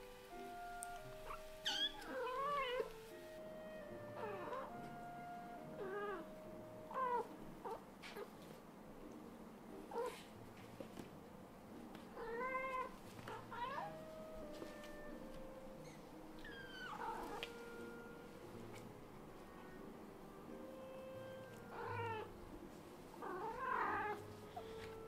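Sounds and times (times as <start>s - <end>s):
kitten meowing: 1.2s - 2.9s, 15.9s - 18.1s, 21.7s - 22.3s.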